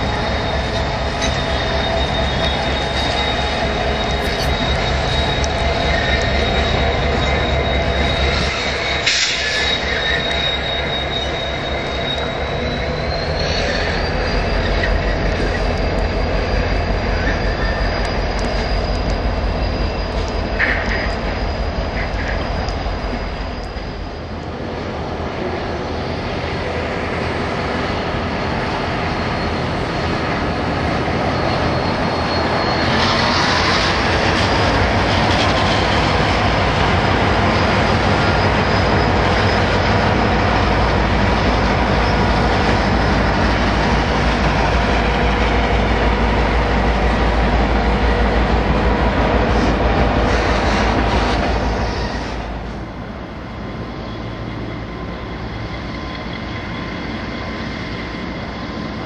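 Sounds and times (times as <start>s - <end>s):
diesel locomotive engine hum: 0.0s - 59.0s
high wheel squeal: 0.0s - 59.0s
train wagons rolling on rails: 0.0s - 59.0s.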